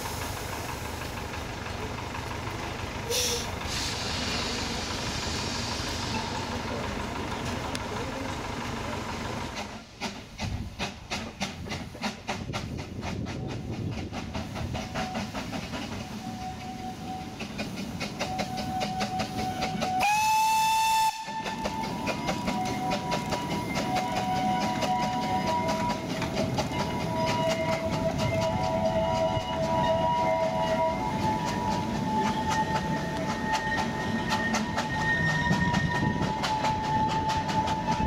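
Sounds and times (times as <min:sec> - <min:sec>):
steam locomotive chuffing: 0:00.0 - 0:38.0
steam whistle blast: 0:03.1 - 0:04.3, 0:18.2 - 0:38.0.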